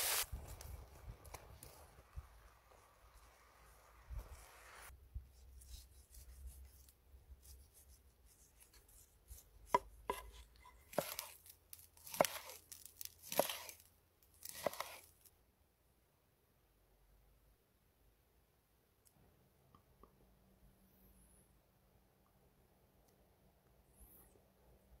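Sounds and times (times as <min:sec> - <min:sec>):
knife slicing on cutting board: 0:07.7 - 0:13.8, 0:14.4 - 0:15.1.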